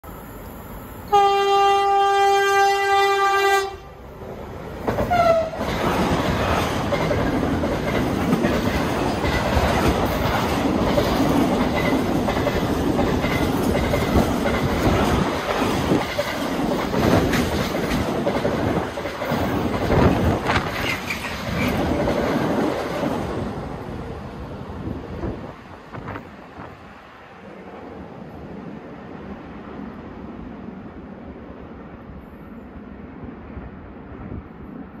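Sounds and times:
freight train rumbling past: 0.0s - 35.0s
locomotive horn blast: 1.1s - 3.9s, 5.1s - 5.6s.

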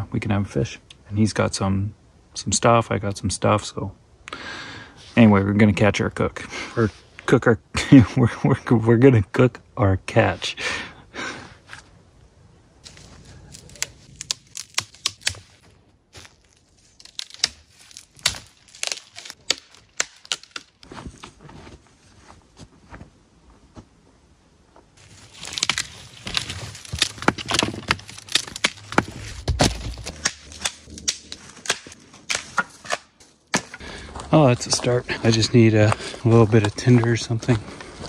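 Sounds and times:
dry branches snapping: 12.8s - 20.9s, 25.0s - 33.9s.

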